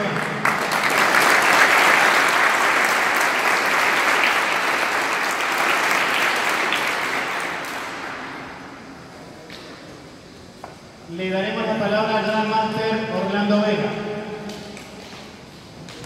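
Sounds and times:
crowd applauding: 0:00.0 - 0:08.7.

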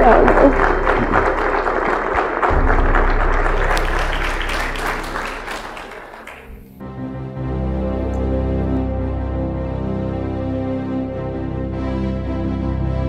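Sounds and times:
congregation applauding: 0:00.0 - 0:06.8
soft instrumental music: 0:02.5 - 0:13.0.

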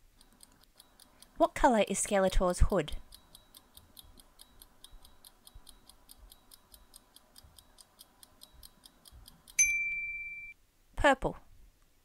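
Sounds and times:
clock ticking fast: 0:00.1 - 0:09.6
bright ding: 0:09.6 - 0:10.6.

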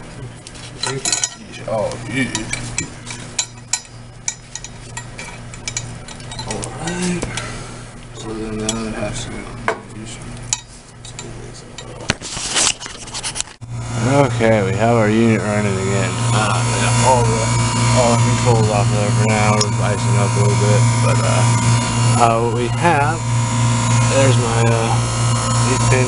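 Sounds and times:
steady low hum: 0:00.0 - 0:26.0
metal fittings clicking and clinking: 0:00.8 - 0:01.4.

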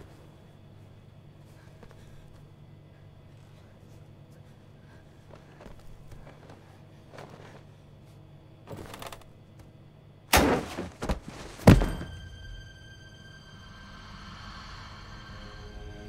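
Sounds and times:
shuffling and rustling: 0:00.0 - 0:09.2, 0:10.4 - 0:12.2
sharp bang: 0:10.3 - 0:12.8
loud crash: 0:10.3 - 0:12.9
eerie sustained music tones: 0:11.6 - 0:16.0.

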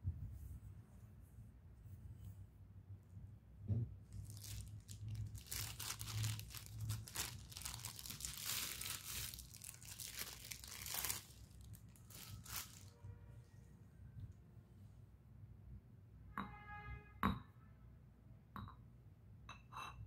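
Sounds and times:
plastic packaging crinkling: 0:04.1 - 0:13.0.

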